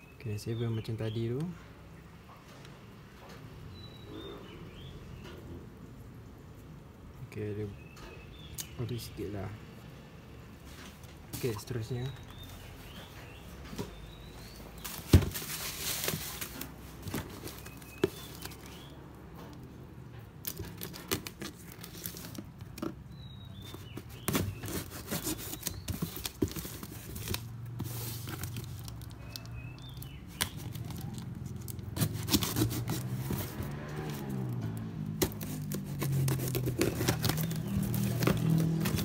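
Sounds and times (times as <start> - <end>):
plastic packaging crinkling: 14.8 - 18.9, 20.5 - 22.8, 23.6 - 33.5, 35.2 - 39.0
wrapping torn by hand: 28.4 - 34.5, 35.2 - 39.0
knife slitting plastic: 31.9 - 33.5, 35.2 - 39.0.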